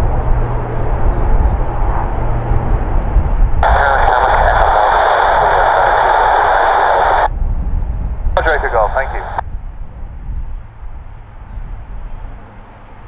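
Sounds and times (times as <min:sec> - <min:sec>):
steady low rumble: 0:00.0 - 0:10.4
radio hiss and static: 0:03.6 - 0:07.3, 0:08.4 - 0:09.4.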